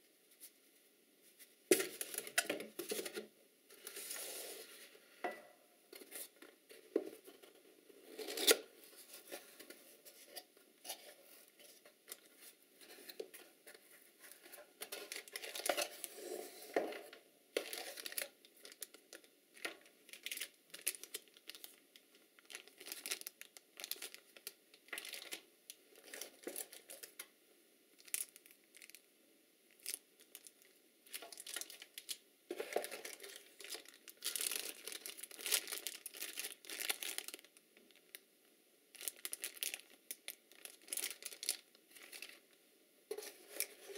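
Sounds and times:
plastic bags crinkling: 0:13.0 - 0:27.2, 0:28.0 - 0:29.0, 0:29.7 - 0:38.2, 0:38.9 - 0:42.4.

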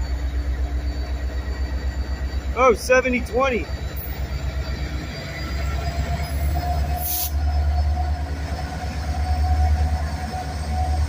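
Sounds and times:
diesel locomotive engine drone: 0:00.0 - 0:11.0
train wheels squealing: 0:00.0 - 0:11.0
brief hiss: 0:07.0 - 0:07.4.

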